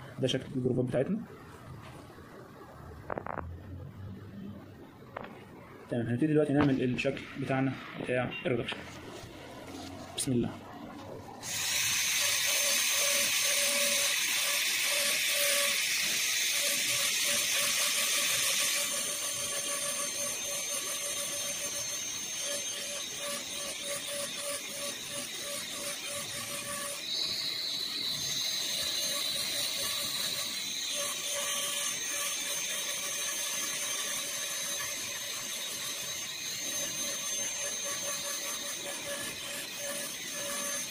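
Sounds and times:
dental drill whine with hiss: 11.4 - 40.9.

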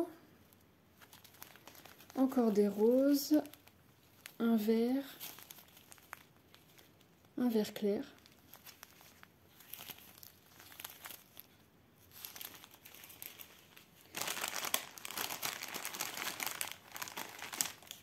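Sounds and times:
plastic bags crinkling: 0.4 - 7.4, 8.0 - 18.0.

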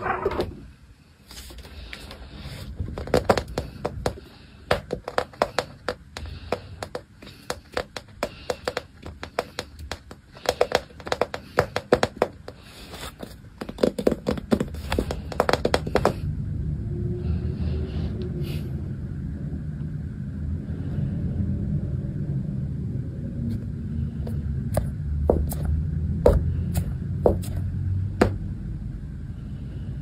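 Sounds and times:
kitten claws scrabbling on hard floor: 2.8 - 16.2.

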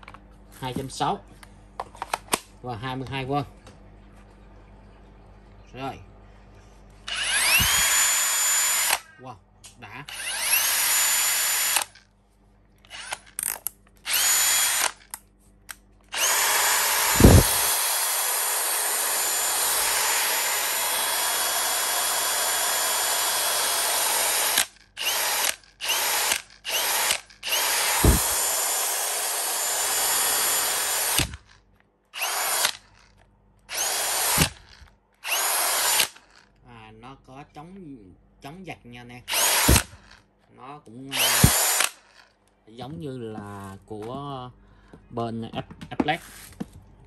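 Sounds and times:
cordless drill whining: 7.1 - 9.0, 10.1 - 12.0, 12.9 - 15.1, 16.1 - 31.6, 32.2 - 33.1, 33.7 - 36.5, 39.3 - 40.2, 41.1 - 42.3.

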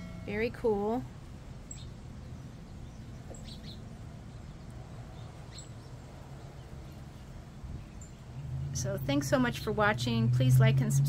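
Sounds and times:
faint high bird chirps: 1.6 - 3.9.

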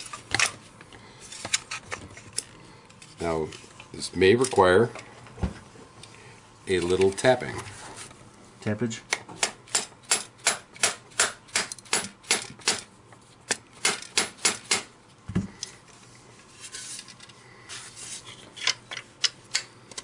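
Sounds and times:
parts scraping softly: 15.6 - 19.1.

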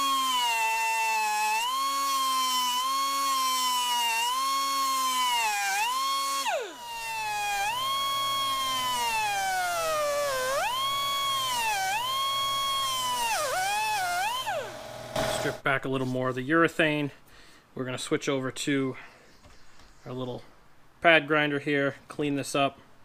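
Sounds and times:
air grinder cutting sheet metal: 0.0 - 15.6.

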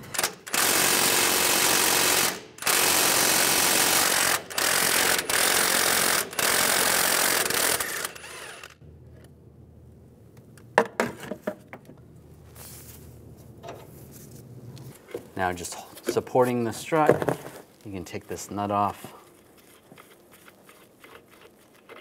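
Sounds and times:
power wrench spinning: 0.1 - 8.8.

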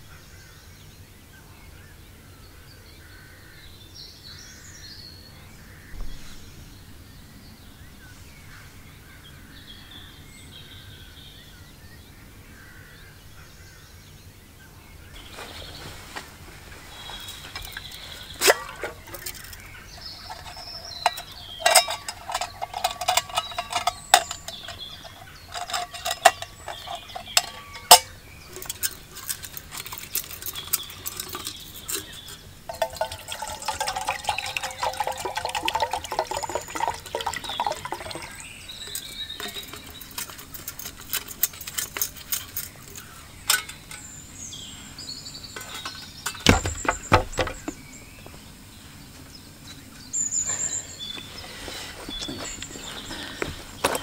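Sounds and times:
water pouring into metal cup: 17.1 - 44.0
metal clinks: 17.3 - 44.7, 45.5 - 47.8
metal cup clunking on stove: 17.5 - 42.7, 43.5 - 44.1, 45.6 - 47.8.

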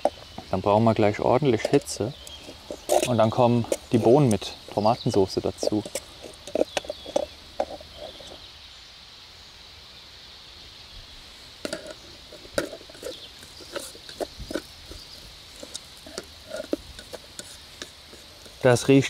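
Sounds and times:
wooden stick scraping a pot: 1.0 - 8.4, 11.6 - 19.0
vegetables sizzling in a pot: 10.8 - 19.0.

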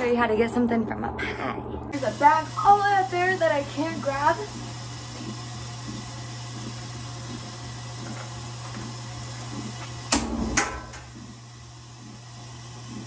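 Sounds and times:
low hum: 0.0 - 4.5.

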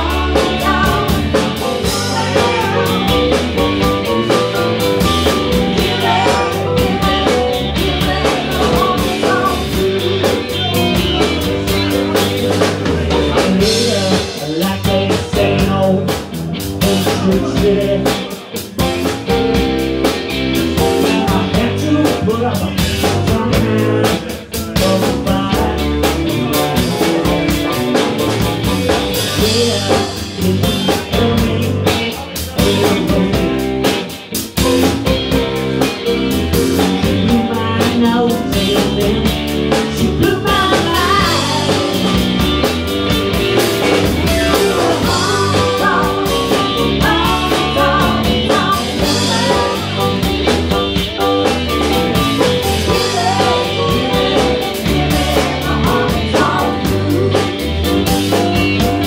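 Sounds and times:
woman singing: 0.0 - 12.3, 13.2 - 16.2, 16.8 - 18.4, 36.9 - 42.4, 44.0 - 50.5, 52.8 - 57.6
drum kit beat: 0.0 - 59.0
electric guitar: 0.0 - 59.0.

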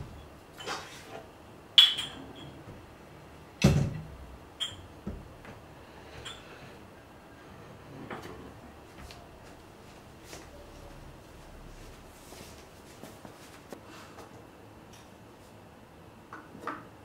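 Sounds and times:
plates clinking: 1.8 - 2.6.

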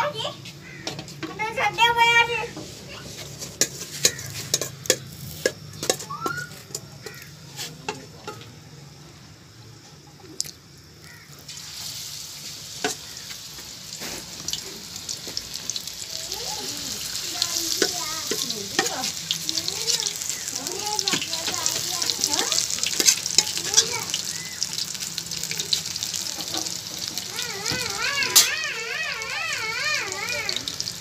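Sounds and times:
batter sizzling in hot oil: 2.5 - 8.6, 11.0 - 31.0
metal spoon clinking on pan: 17.7 - 19.2.

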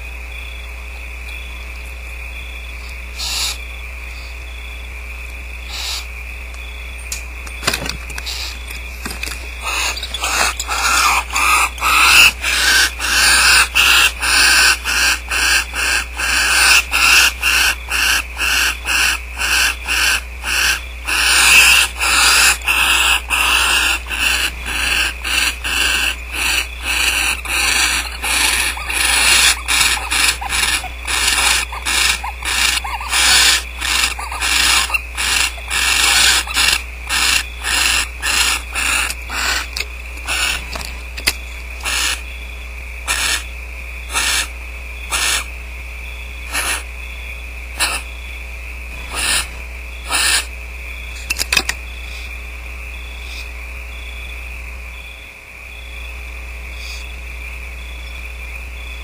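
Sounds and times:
steady low hum: 0.0 - 59.0
barn owls hissing: 3.1 - 4.4, 5.6 - 6.2, 8.1 - 42.4, 43.0 - 45.6, 46.4 - 47.0, 47.7 - 48.3, 48.9 - 52.4, 53.1 - 53.6, 56.7 - 57.2.

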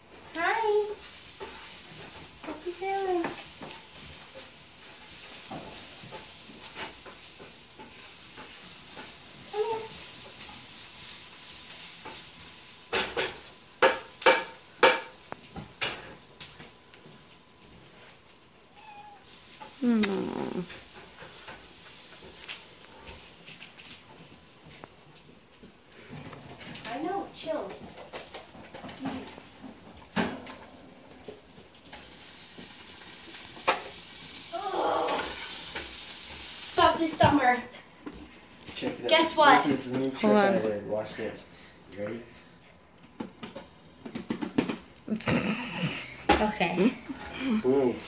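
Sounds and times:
pork chops sizzling in a pan: 0.0 - 16.6, 18.4 - 23.4, 31.3 - 37.6, 46.2 - 48.0
steady background hiss: 0.0 - 48.0.

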